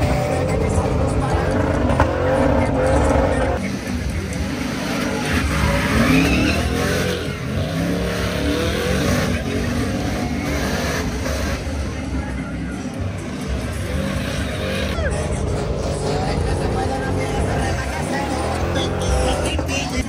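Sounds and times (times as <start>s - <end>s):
tires squealing: 0.0s - 20.0s
engine revving hard: 4.5s - 11.8s, 13.4s - 20.0s.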